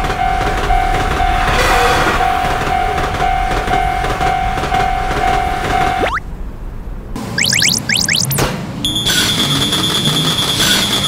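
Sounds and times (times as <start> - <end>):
train rushing past: 0.0 - 6.0
train rumbling on track: 0.0 - 7.4, 8.4 - 11.0.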